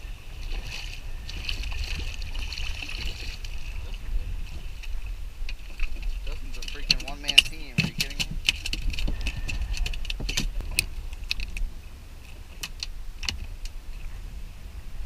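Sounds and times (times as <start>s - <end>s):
low rumble: 0.0s - 15.0s
gear clicks and knocks: 5.5s - 13.8s.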